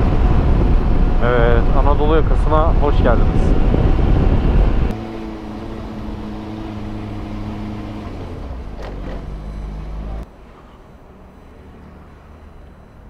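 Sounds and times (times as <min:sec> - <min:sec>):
wind and road rush: 0:00.0 - 0:13.0.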